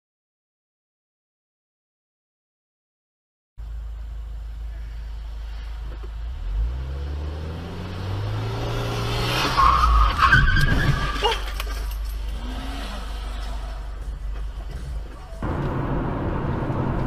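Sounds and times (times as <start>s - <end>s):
road and engine noise: 3.6s - 17.0s
car engine revving: 5.5s - 17.0s
tyres squealing: 9.4s - 15.4s.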